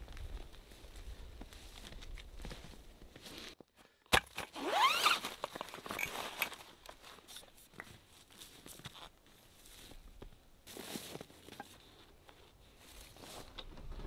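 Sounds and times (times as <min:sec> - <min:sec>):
zipper pulled open: 0:04.5 - 0:05.4.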